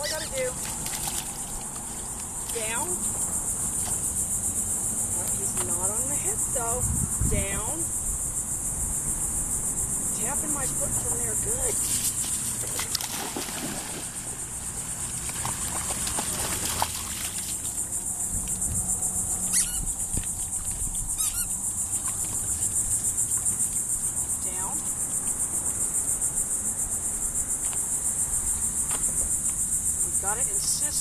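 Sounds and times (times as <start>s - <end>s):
insects chirring: 0.0s - 31.0s
dog splashing through water: 0.1s - 2.5s, 11.8s - 18.6s.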